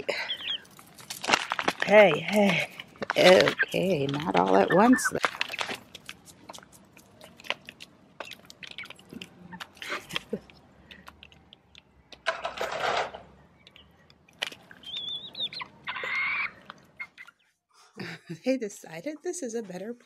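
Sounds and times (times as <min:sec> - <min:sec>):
beaks tapping and crunching grain: 0:00.3 - 0:12.5, 0:13.6 - 0:17.4
rustling: 0:00.6 - 0:11.4.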